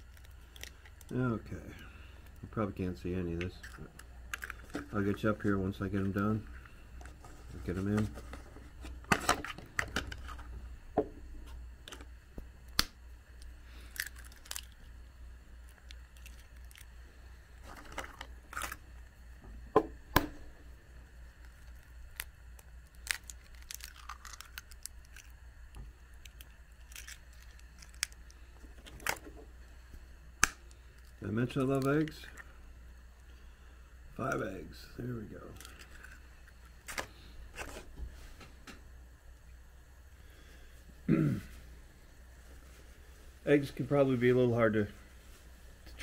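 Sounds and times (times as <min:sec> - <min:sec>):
low steady hum: 0:00.0 - 0:46.0
rustling of things handled: 0:03.4 - 0:10.5, 0:17.5 - 0:18.8.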